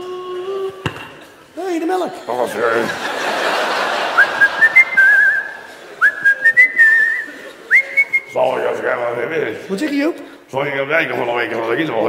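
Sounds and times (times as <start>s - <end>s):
man whistling: 4.2s - 8.4s.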